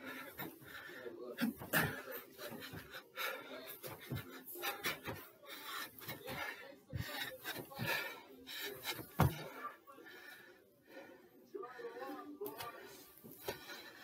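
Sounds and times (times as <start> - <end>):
man panting and wheezing: 0.0 - 14.0
feet thumping on stairs: 1.4 - 9.6.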